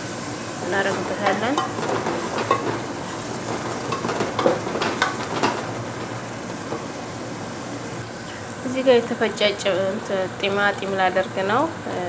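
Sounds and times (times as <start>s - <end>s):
onions sizzling in butter: 0.0s - 11.8s
wooden spoon scraping pot: 0.7s - 7.0s.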